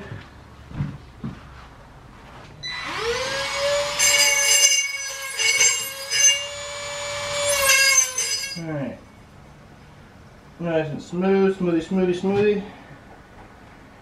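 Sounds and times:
power tool whining: 0:02.6 - 0:08.6
tool grinding against steel: 0:03.0 - 0:08.6.

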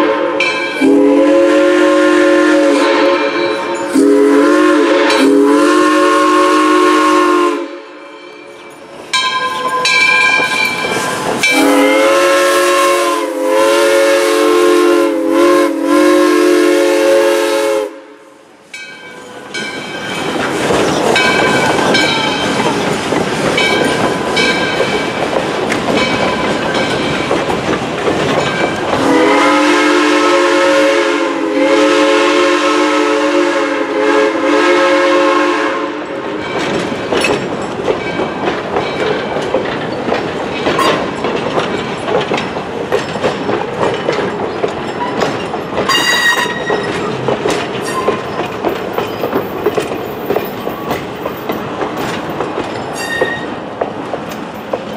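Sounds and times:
steam whistle: 0:00.0 - 0:08.2, 0:11.4 - 0:18.2, 0:29.0 - 0:36.2, 0:45.9 - 0:46.8
train wheels clacking on rail joints: 0:08.2 - 0:14.9, 0:18.8 - 0:30.2, 0:36.0 - 0:54.9.

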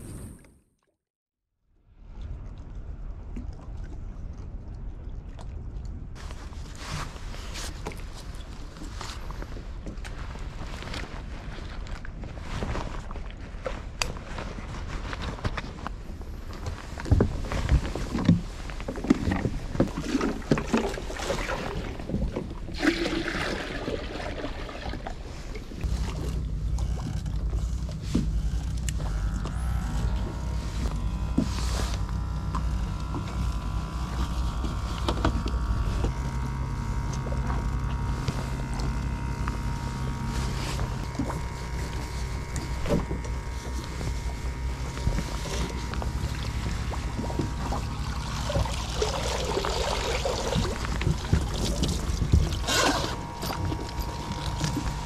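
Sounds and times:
steady low hum: 0:02.1 - 0:55.0
held tones: 0:50.8 - 0:55.0.

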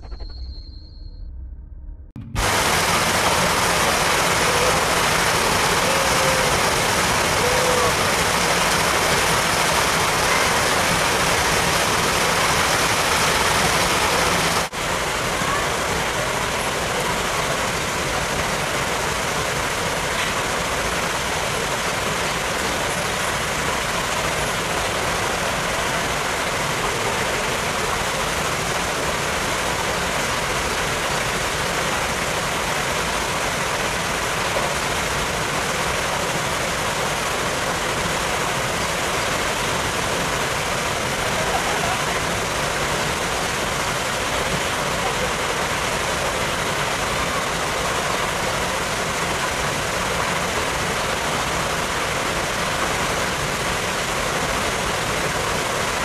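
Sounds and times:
loud rushing noise: 0:00.0 - 0:14.9.

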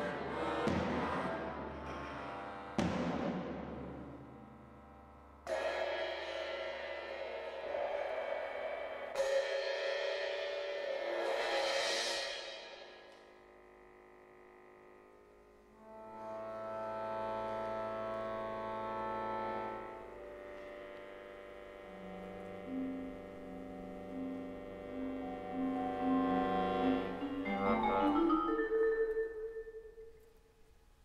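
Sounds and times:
accordion: 0:15.8 - 0:28.8
marimba notes: 0:22.6 - 0:30.1.

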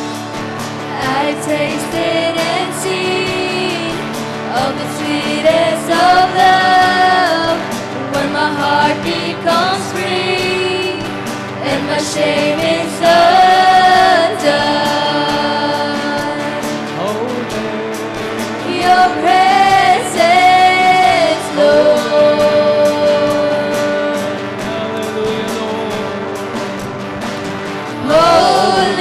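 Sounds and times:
backing singers: 0:00.0 - 0:18.0, 0:18.6 - 0:29.0
instrumental accompaniment: 0:00.0 - 0:29.0
woman singing worship song: 0:00.9 - 0:16.8, 0:18.6 - 0:24.8, 0:28.0 - 0:29.0.

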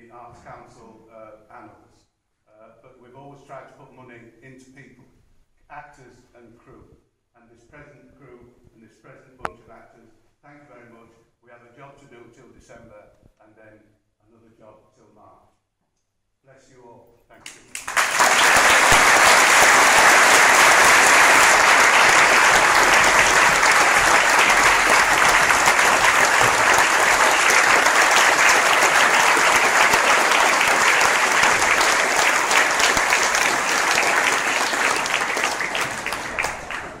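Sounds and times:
audience applauding: 0:17.5 - 0:37.0.

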